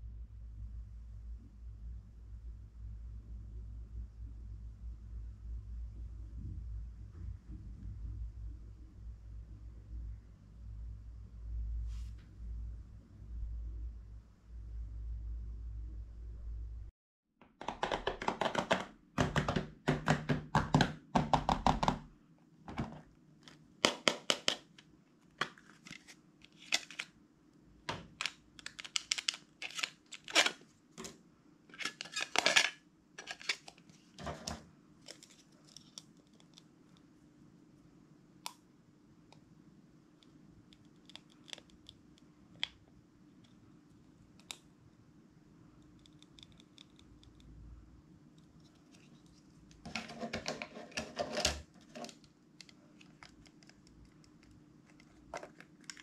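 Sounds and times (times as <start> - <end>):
crinkly plastic handling noises: 24.3 - 27.1, 27.9 - 36.5, 48.9 - 56.0
plastic box clicking and scraping: 28.0 - 36.0, 49.8 - 52.3.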